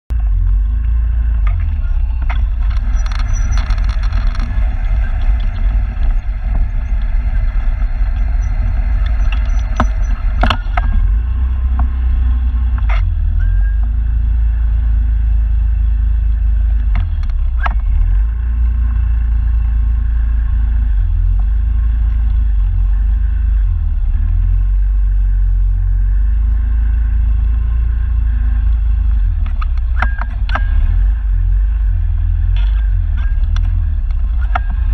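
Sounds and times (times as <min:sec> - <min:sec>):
scooter engine and road rumble: 0:00.1 - 0:34.9.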